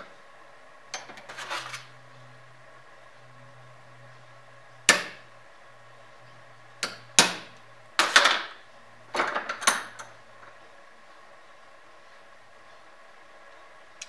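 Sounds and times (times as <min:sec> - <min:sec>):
hammer striking steel punch: 0:04.9 - 0:05.2.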